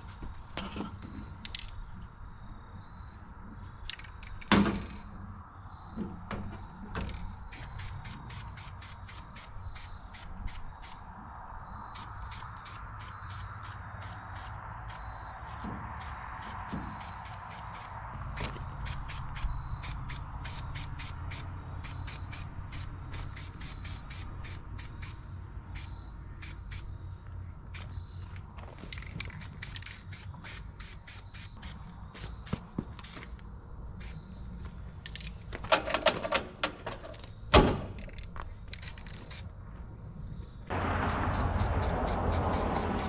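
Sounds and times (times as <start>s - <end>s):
spray paint hissing: 7.5s - 11.1s, 11.9s - 15.2s, 16.0s - 26.9s, 27.7s - 28.0s, 29.2s - 33.3s, 40.8s - 43.0s
spray can ball rattling: 28.9s - 31.6s.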